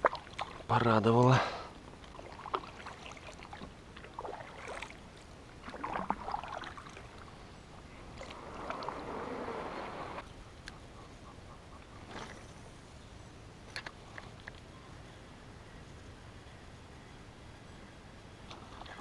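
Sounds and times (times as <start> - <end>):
water splashing around boat: 0.0 - 10.2, 18.4 - 19.0.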